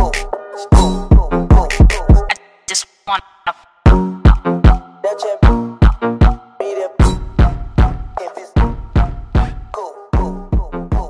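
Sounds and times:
hip-hop music: 0:00.0 - 0:11.0
heavy bass-drum hits: 0:07.0 - 0:08.0.

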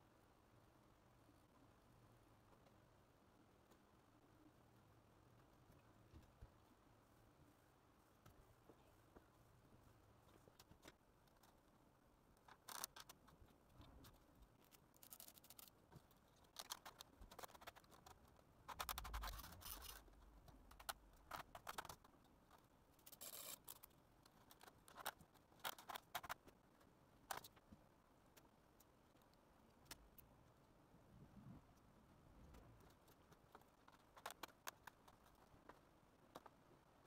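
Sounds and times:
fingers scratching and tapping foam board: 0:12.4 - 0:26.6, 0:32.8 - 0:36.6.

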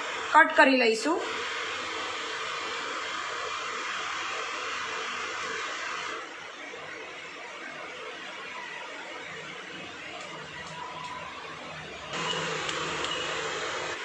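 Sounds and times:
steady rushing hiss: 0:00.0 - 0:06.5, 0:12.1 - 0:14.0.

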